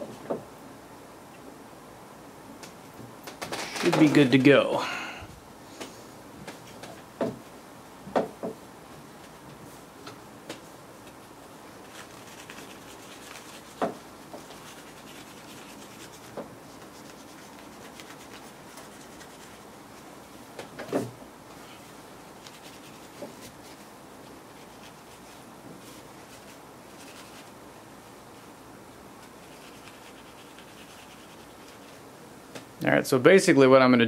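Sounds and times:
faint rubbing: 0:11.8 - 0:20.1, 0:29.3 - 0:32.0.

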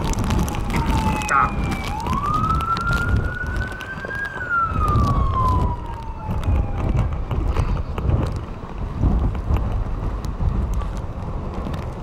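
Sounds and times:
wind rumble on microphone: 0:00.0 - 0:12.0
siren falling wail: 0:00.3 - 0:07.4.

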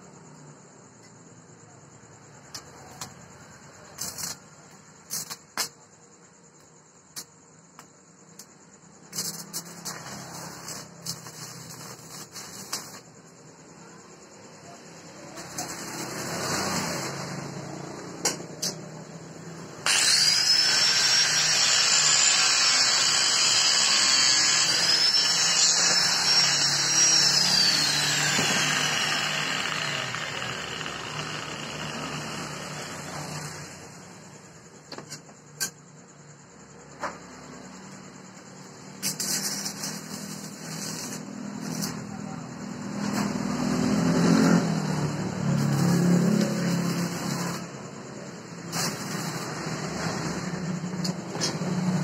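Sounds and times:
angle grinder cutting steel: 0:19.8 - 0:33.9, 0:45.5 - 0:47.8, 0:48.6 - 0:50.4.

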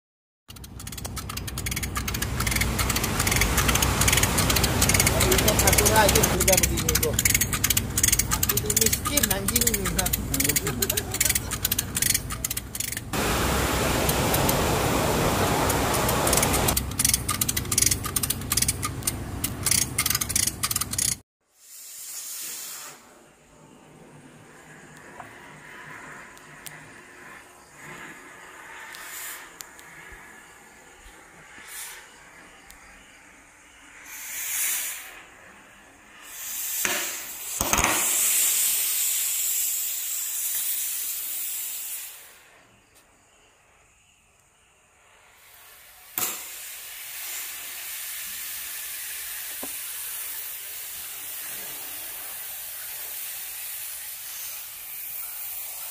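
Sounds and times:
chain hoist ratchet clicking: 0:00.5 - 0:13.2, 0:16.2 - 0:21.2
steady rushing hiss: 0:01.1 - 0:18.6, 0:21.4 - 0:55.9.

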